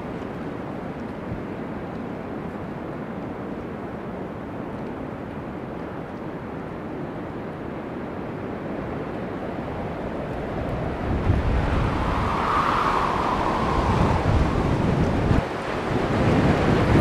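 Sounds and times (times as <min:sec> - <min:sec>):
airliner engines on approach: 0:00.0 - 0:17.0
gusty wind buffeting microphone: 0:07.5 - 0:17.0.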